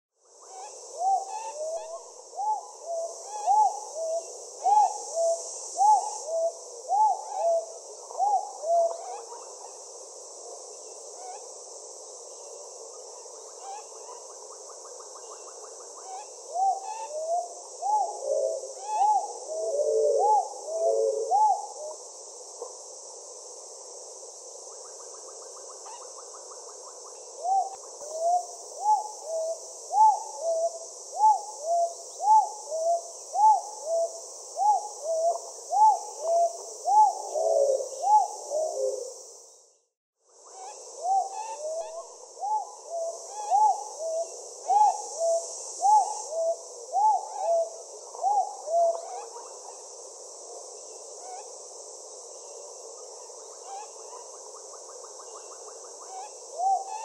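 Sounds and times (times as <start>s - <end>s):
high insect buzz: 0.3s - 57.0s
dove hooting: 1.0s - 9.2s, 16.5s - 22.0s, 27.4s - 39.2s, 41.0s - 49.3s.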